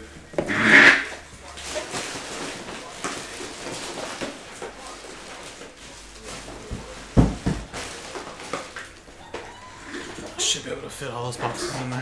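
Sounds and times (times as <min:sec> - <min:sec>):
cardboard boxes rustling and knocking: 0:05.8 - 0:08.8.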